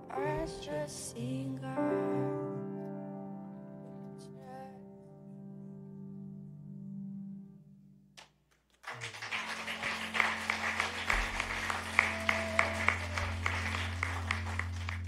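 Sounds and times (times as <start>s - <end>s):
congregation applauding: 8.7s - 15.0s
low sustained note: 9.9s - 15.0s.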